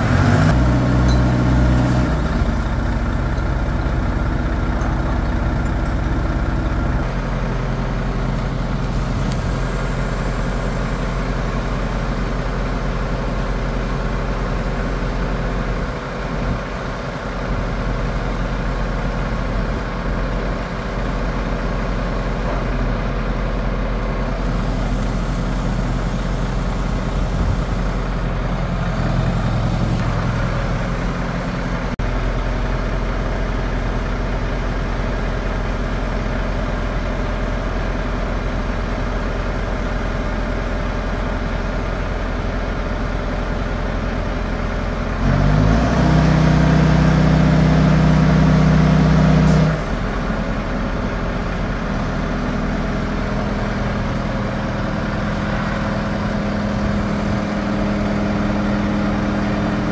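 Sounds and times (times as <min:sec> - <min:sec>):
diesel truck engine idling: 0:00.0 - 0:59.9.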